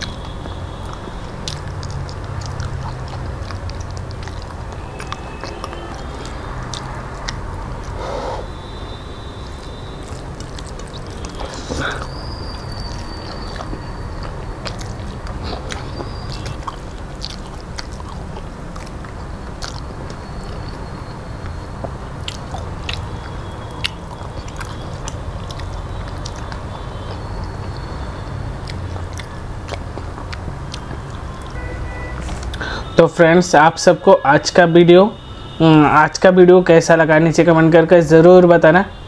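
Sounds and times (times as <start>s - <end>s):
chewing and mouth smacking: 0.0s - 32.9s.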